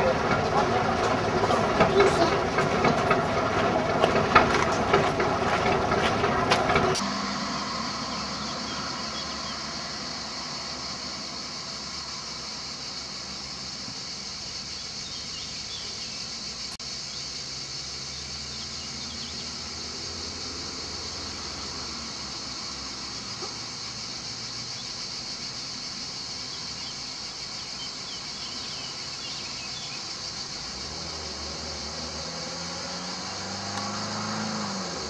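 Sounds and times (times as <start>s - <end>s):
cicadas buzzing: 0.0s - 35.0s
faint bird chirps: 7.5s - 10.0s.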